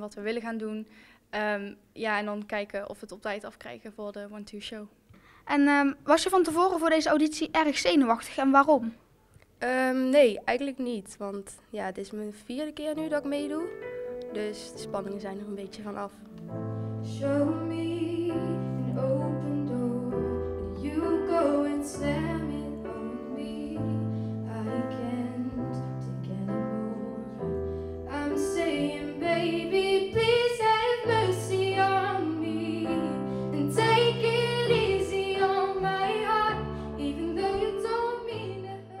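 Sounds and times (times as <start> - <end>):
piano accompaniment: 12.9 - 39.0
woman singing into a microphone: 17.1 - 27.4.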